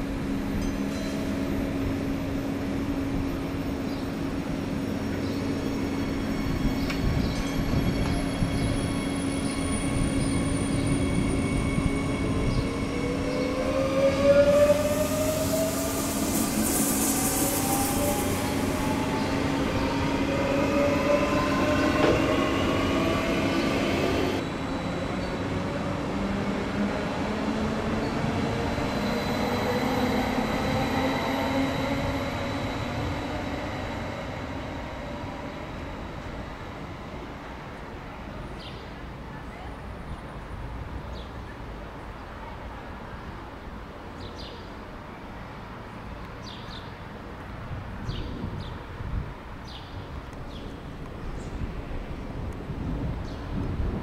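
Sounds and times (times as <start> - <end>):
high hiss: 15.0 - 19.5.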